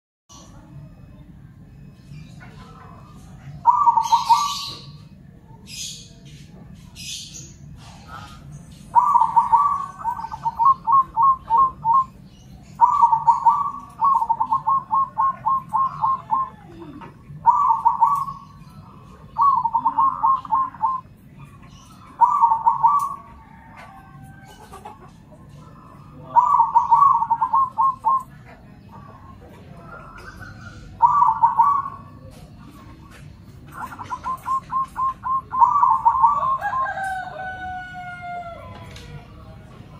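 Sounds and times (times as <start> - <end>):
dove cooing: 0.3 - 6.2, 6.9 - 39.6.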